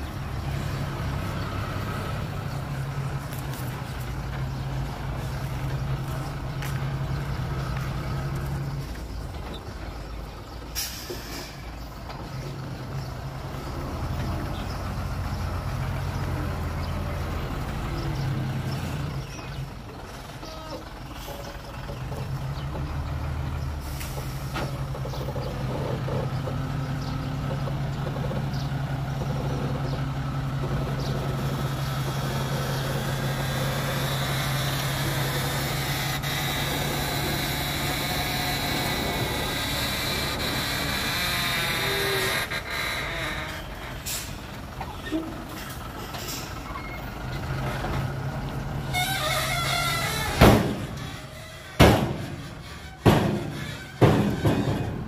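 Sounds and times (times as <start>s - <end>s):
diesel machinery engine: 0.0s - 55.0s
air brake hisses: 10.8s - 11.7s.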